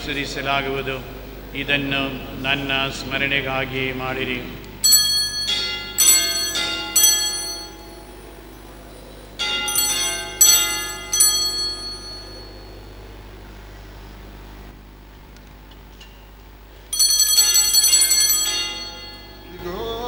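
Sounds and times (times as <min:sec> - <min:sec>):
altar bell ringing: 0:04.8 - 0:13.2, 0:16.9 - 0:20.0.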